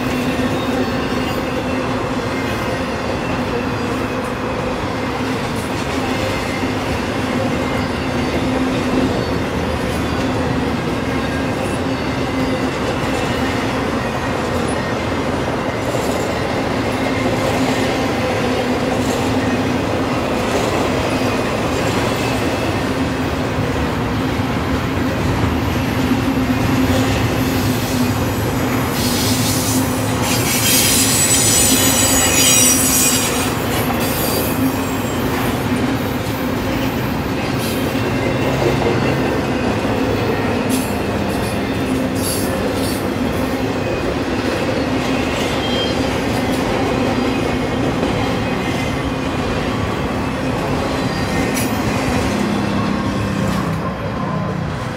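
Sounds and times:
freight train wheels rumbling: 0:00.0 - 0:54.9
high wheel squeal: 0:28.9 - 0:36.8.

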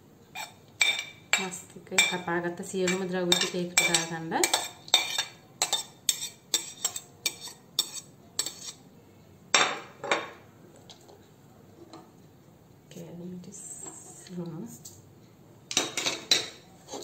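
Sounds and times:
spoon clinking on ceramic: 0:00.4 - 0:02.3, 0:02.9 - 0:08.7.

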